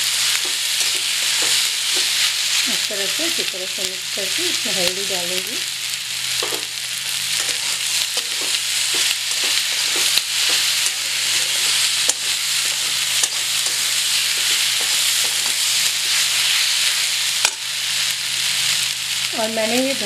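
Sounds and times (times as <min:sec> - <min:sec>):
vegetables sizzling in oil: 0:00.0 - 0:20.0
metal spatula scraping a pan: 0:07.4 - 0:16.6.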